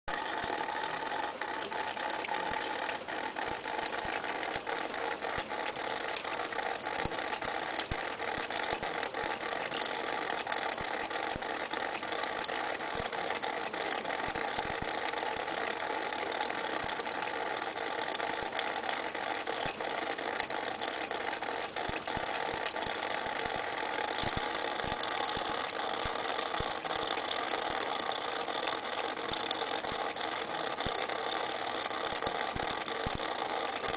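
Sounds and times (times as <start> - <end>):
cat lapping water: 0.1 - 33.9
tap water splashing into steel sink: 0.4 - 15.2, 16.0 - 33.9.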